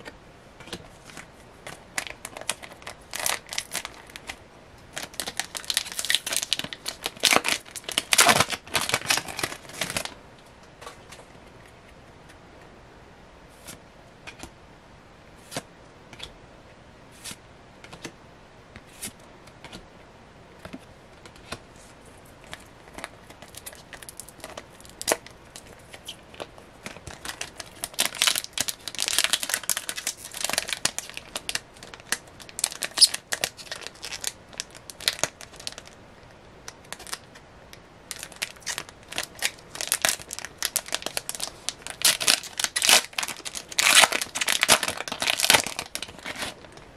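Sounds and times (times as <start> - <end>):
foil pack crinkling and tearing: 2.0 - 10.1, 22.5 - 36.0, 36.8 - 37.3, 38.1 - 46.7.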